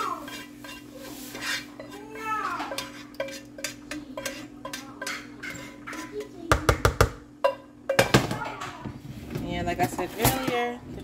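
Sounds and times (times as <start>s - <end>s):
utensil scraping a bowl: 0.0s - 6.4s.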